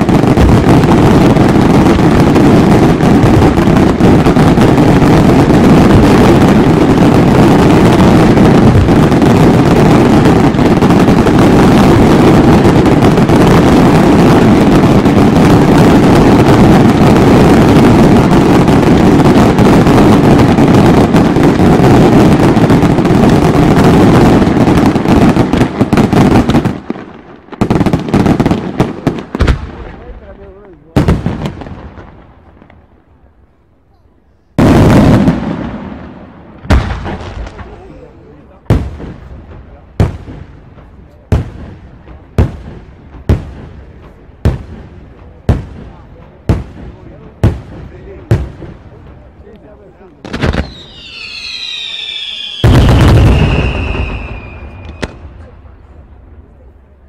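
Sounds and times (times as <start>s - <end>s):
fireworks bangs: 0.0s - 57.0s
fireworks barrage: 0.0s - 57.0s.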